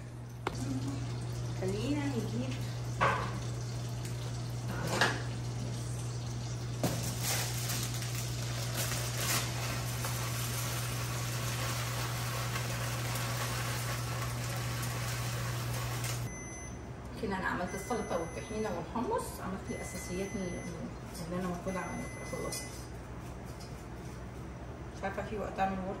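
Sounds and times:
heating water hissing: 0.0s - 16.3s
kitchen utensils clinking: 4.7s - 5.5s.

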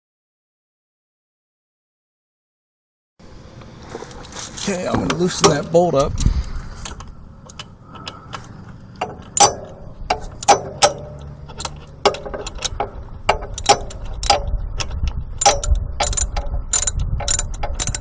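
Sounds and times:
ratchet wrench clicking: 9.0s - 18.0s.

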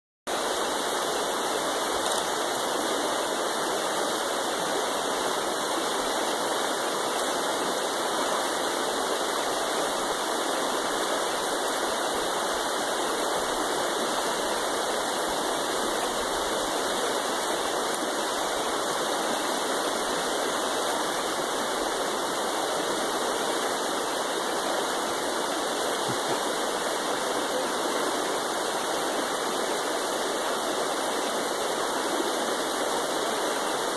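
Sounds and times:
river rushing over rocks: 0.3s - 33.9s.

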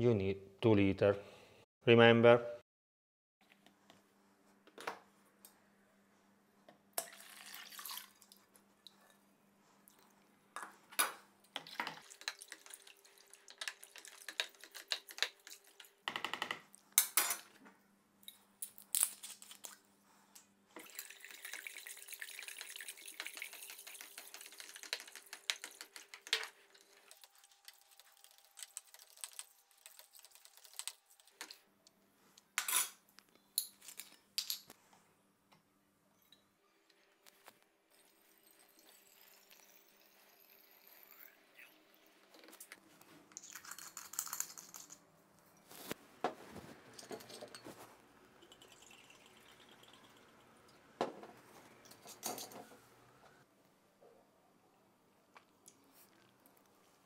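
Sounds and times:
liquid pouring into a bucket: 7.0s - 8.4s, 20.8s - 25.3s, 48.4s - 50.7s.

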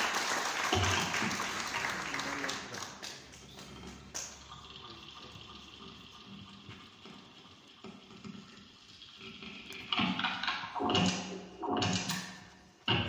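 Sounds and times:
experimental electronic music: 3.4s - 13.0s.

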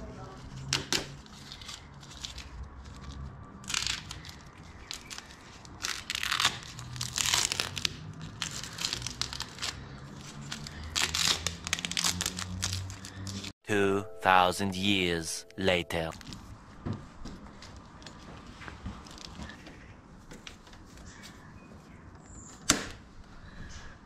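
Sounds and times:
tape peeling and tearing: 0.6s - 13.5s.

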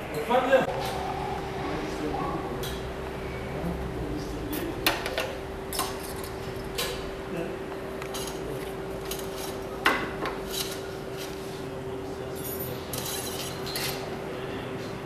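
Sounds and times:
steady hum: 0.0s - 15.0s
tools clinking and scraping: 8.0s - 9.6s, 10.2s - 11.4s, 12.3s - 14.1s.

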